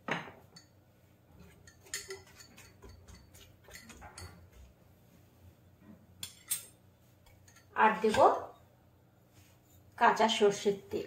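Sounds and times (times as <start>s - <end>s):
metal spoon clinking on steel pan: 1.5s - 4.4s, 6.2s - 8.3s.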